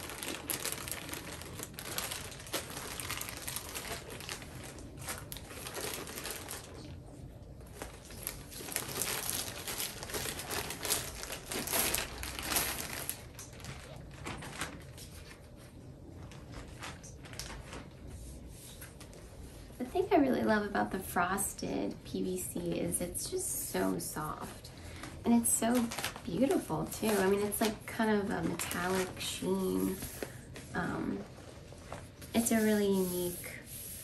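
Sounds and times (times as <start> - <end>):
plastic bag crinkling: 0.0 - 15.4, 25.0 - 30.7
vinyl rustling and crackling: 0.0 - 20.0, 25.0 - 34.0.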